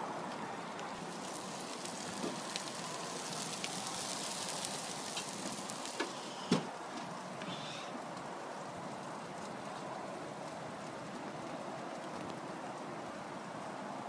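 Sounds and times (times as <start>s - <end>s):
meat sizzling on grill: 0.5s - 6.5s.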